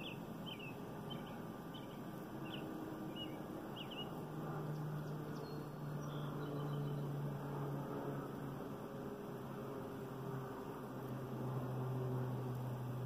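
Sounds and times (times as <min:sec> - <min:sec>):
bird chirping: 0:00.0 - 0:07.1
low steady hum: 0:00.0 - 0:13.0
steady outdoor hiss: 0:00.0 - 0:13.0.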